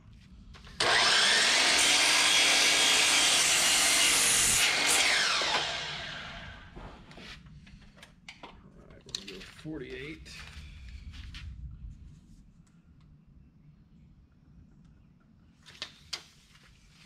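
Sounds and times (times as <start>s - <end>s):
miter saw cutting wood: 0.8s - 6.8s
saw blade spinning down: 0.8s - 6.8s.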